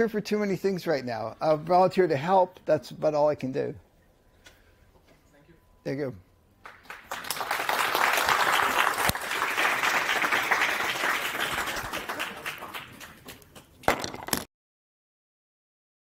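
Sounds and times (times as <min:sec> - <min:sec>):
audience applauding: 0:06.6 - 0:13.7.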